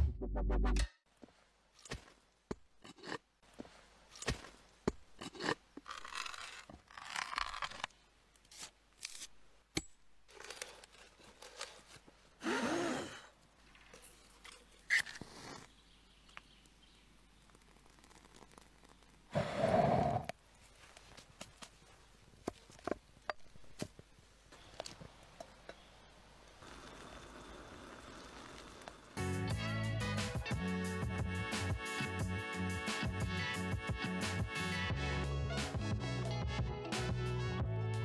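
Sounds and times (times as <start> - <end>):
blade carving wood: 5.3 - 7.9.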